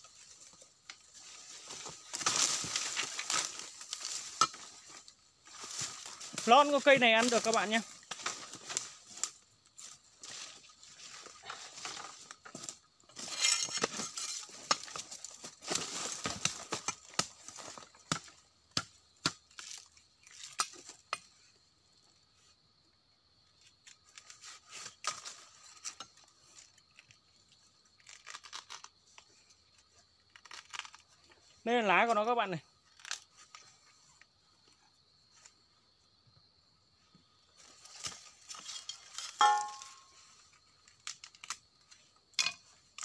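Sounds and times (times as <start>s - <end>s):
plant stalk snapping and ripping: 28.0s - 29.0s, 30.3s - 31.1s, 32.9s - 33.3s, 41.0s - 41.6s.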